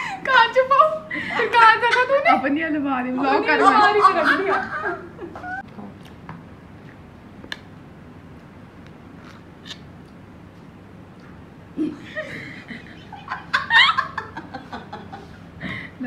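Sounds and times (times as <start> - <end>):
voices: 0.1 - 5.9
people laughing: 1.1 - 2.6, 3.2 - 5.6, 11.8 - 15.4.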